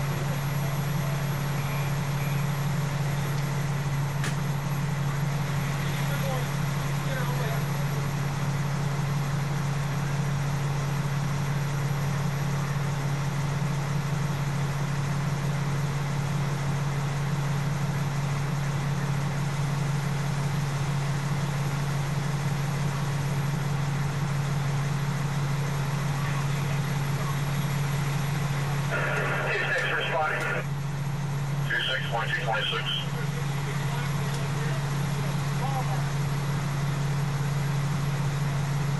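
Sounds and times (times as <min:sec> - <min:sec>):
truck engine idling: 0:00.0 - 0:38.9.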